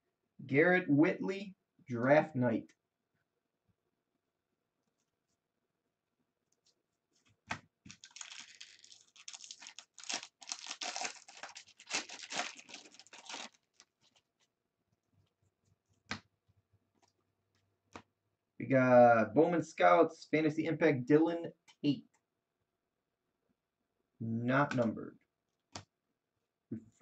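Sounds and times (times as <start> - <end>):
foil wrapper tearing and crinkling: 7.9 - 14.3.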